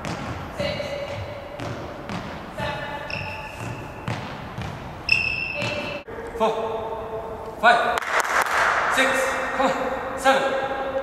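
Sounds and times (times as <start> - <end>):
shoes squeaking on court floor: 0.0 - 6.4.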